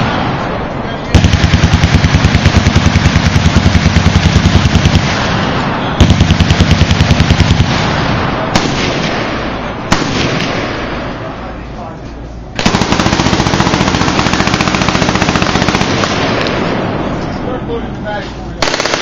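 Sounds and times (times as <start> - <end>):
single loud gunshots: 0.0 - 11.2
machine gun automatic bursts: 1.1 - 9.1, 12.6 - 16.7, 18.6 - 19.0
crackle of distant gunfire: 1.1 - 11.2, 12.6 - 17.2.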